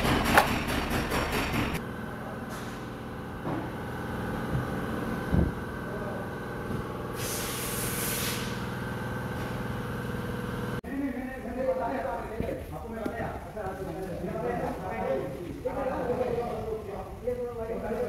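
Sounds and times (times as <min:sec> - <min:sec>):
steady mechanical hum: 0:00.0 - 0:18.0
hiss of rushing air: 0:07.2 - 0:08.6.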